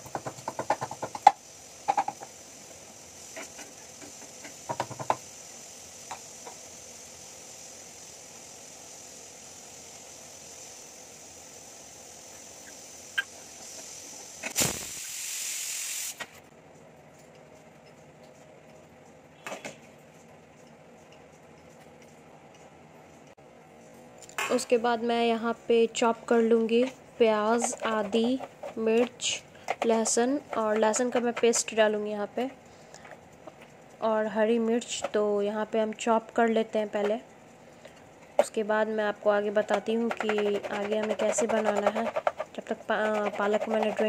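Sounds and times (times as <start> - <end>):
pestle knocking in mortar: 0.0 - 2.3, 4.7 - 5.2
pressure cooker steam hissing: 0.0 - 16.2, 26.8 - 31.9, 39.2 - 44.0.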